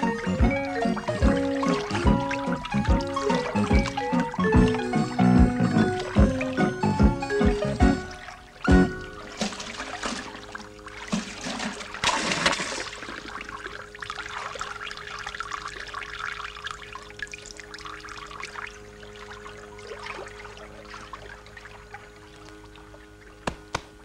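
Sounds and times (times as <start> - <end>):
water gushing in washing machine: 0.0 - 23.4
low hum: 0.0 - 23.5.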